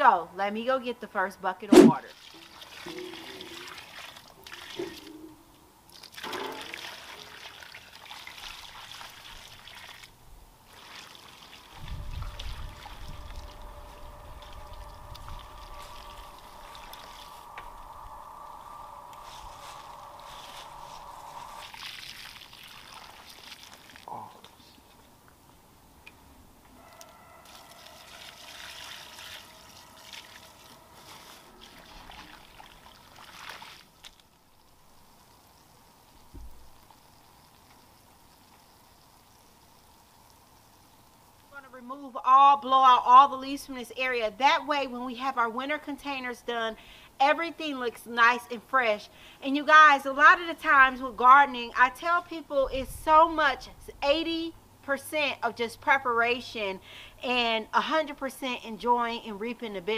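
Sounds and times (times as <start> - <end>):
water pouring onto soil: 2.1 - 5.1, 5.9 - 17.5, 19.0 - 24.1, 27.4 - 35.6
low rumble: 11.8 - 21.7
water splashing onto soil: 21.6 - 24.1, 28.2 - 34.4.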